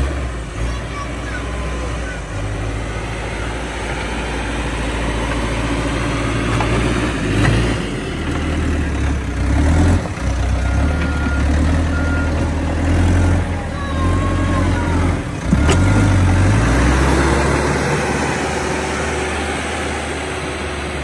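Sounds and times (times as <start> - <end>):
diesel engine running: 0.0 - 21.0
reversing alarm beeping: 10.6 - 12.5.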